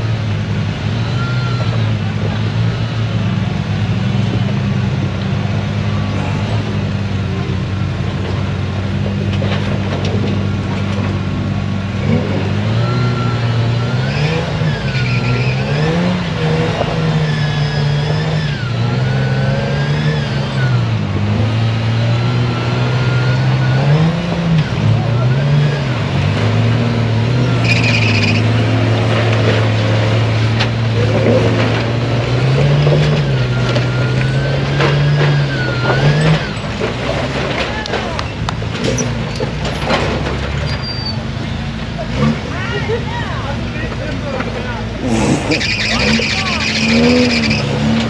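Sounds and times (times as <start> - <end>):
vehicle engine revving: 0.0 - 48.0.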